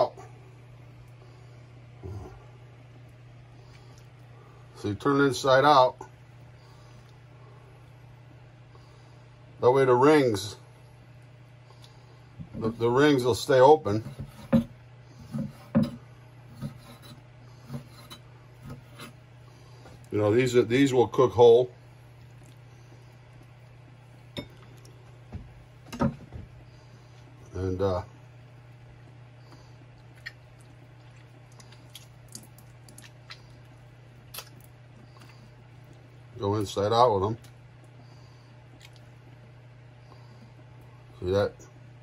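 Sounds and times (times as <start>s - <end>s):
low steady hum: 0.0s - 42.0s
faint wet squelches: 21.8s - 25.9s, 28.2s - 36.4s, 37.4s - 41.1s.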